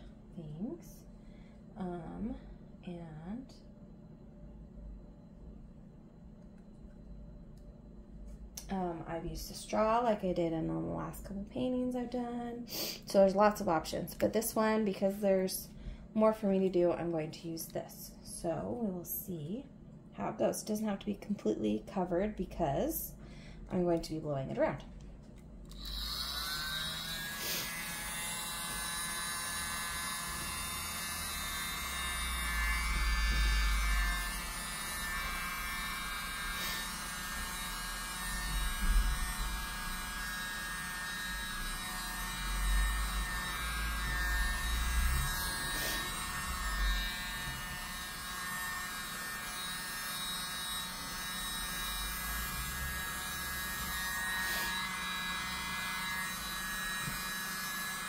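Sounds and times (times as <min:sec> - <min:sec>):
small electric blower whining: 0:25.7 - 0:58.0.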